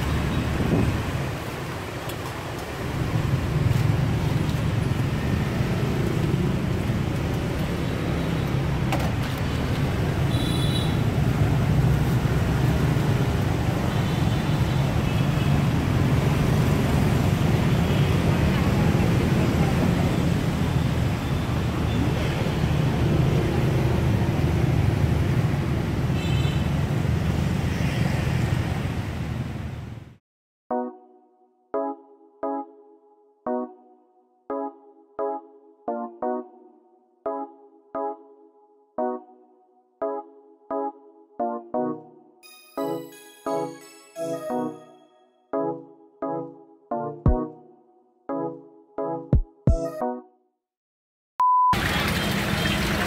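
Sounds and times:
motorbikes and cars passing: 0.0 - 30.2, 51.8 - 53.0
street traffic rumble: 0.0 - 30.2, 51.8 - 53.0.

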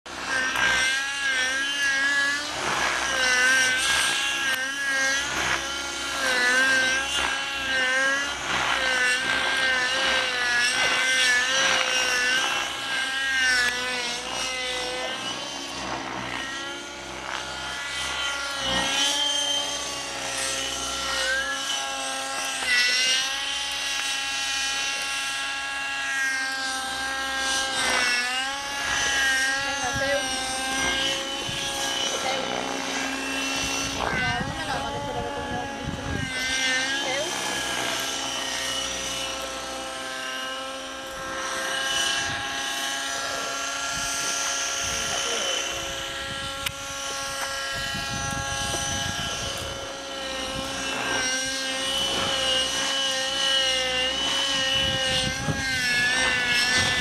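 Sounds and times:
model helicopter engine running: 0.0 - 57.0.

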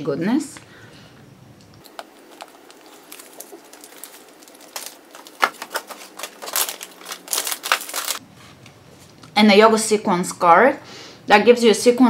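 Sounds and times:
packaging crinkling and rustling: 1.8 - 8.7.

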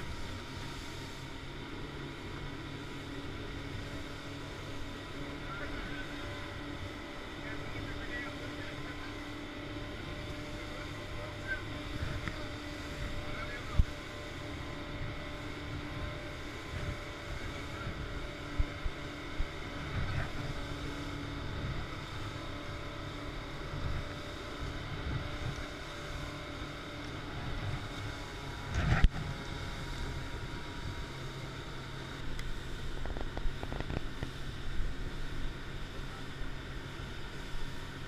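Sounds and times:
motorboat engine drone: 0.0 - 38.0
water wash along hull: 0.0 - 38.0.

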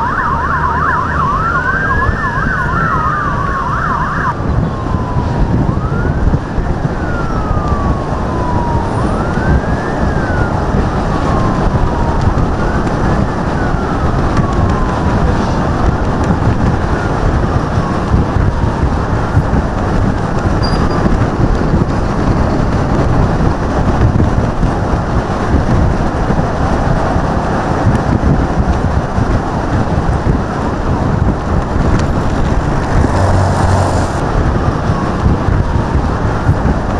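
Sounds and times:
siren wailing: 0.0 - 16.1, 31.4 - 36.7
road and wind noise: 0.0 - 36.9.

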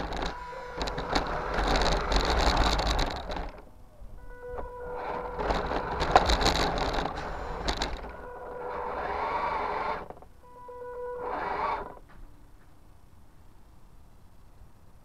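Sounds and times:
rc car rattling over concrete: 0.0 - 3.7, 5.0 - 10.3
motor noise bursts: 4.2 - 12.1.

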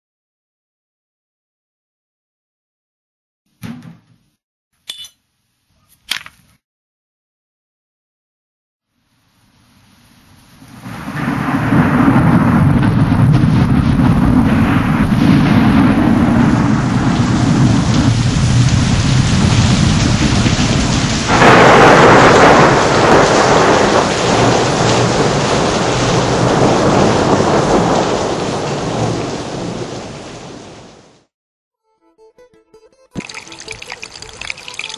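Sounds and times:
steady rain: 9.8 - 31.3
peal of thunder: 10.8 - 31.2.

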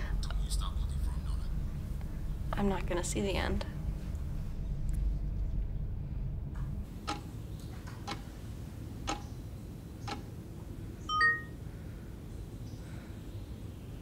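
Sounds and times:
wall clock ticking: 7.1 - 7.3, 8.0 - 8.2, 9.0 - 9.3, 10.1 - 10.3
phone notification chime: 11.1 - 11.5.

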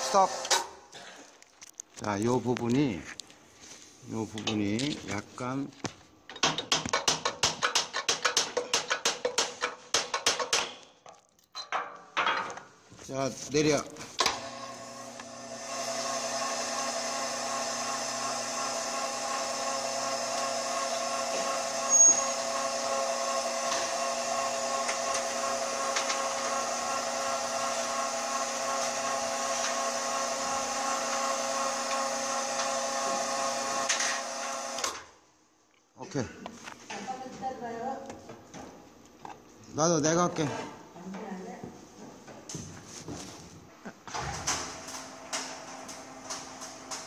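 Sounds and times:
shutter motor humming and whining: 14.2 - 35.0.

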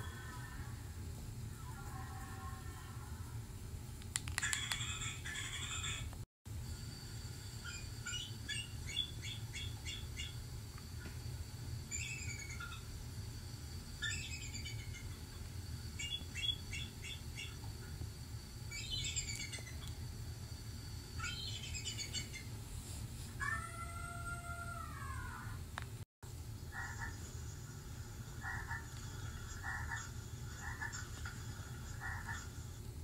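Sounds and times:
bird chirping and calling: 8.1 - 10.4, 16.0 - 17.6, 18.7 - 19.8, 21.2 - 22.5.

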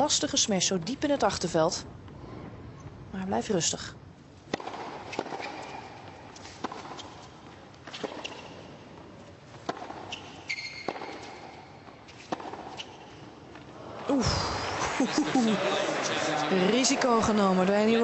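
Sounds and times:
faint arena background noise: 0.0 - 10.8, 11.4 - 18.0
tennis ball hit by rackets: 4.5 - 7.3, 7.9 - 8.6, 9.6 - 13.1
shoe squeaks on hard court: 5.0 - 8.8, 9.7 - 13.3.

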